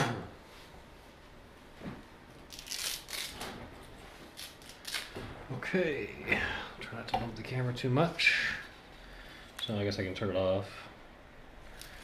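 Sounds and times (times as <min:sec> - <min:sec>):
handling and rustling noise: 0:00.5 - 0:05.8.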